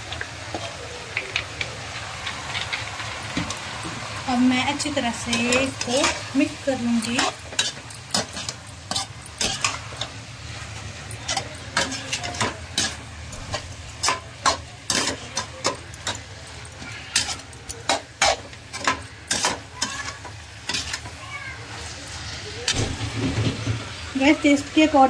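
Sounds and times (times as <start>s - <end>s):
spatula scraping metal pan: 11.2s - 21.1s.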